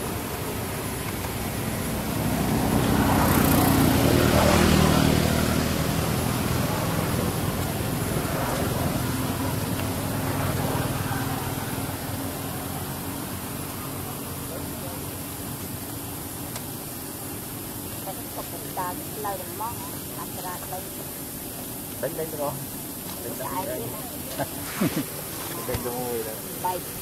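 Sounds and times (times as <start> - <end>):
vehicle engine passing: 0.1 - 15.4.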